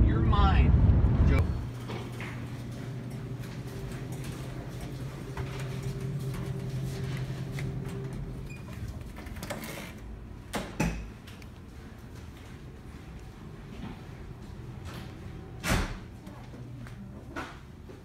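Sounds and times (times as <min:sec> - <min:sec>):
steady low hum: 0:00.0 - 0:09.2.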